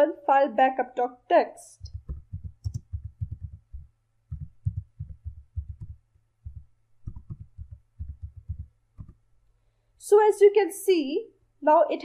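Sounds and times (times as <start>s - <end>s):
faint steady hum: 0.0s - 12.0s
keyboard typing thuds: 1.8s - 9.2s.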